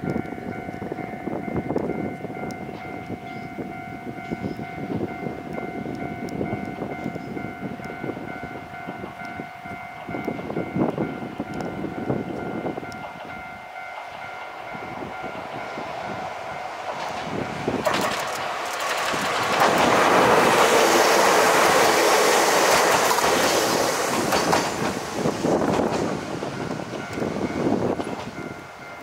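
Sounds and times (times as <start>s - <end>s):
steady high tone: 0.0s - 29.0s
train rumbling: 0.0s - 29.0s.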